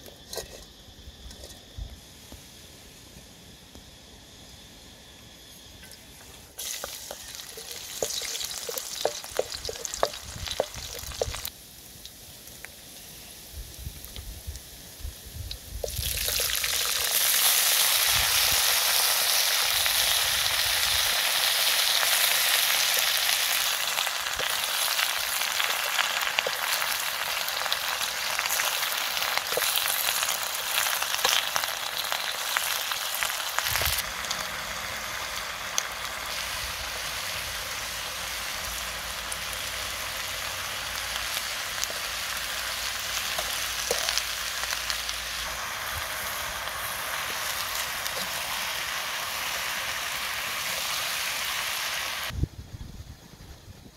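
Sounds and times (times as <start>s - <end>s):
cabbage sizzling in a wok: 0.0s - 52.4s.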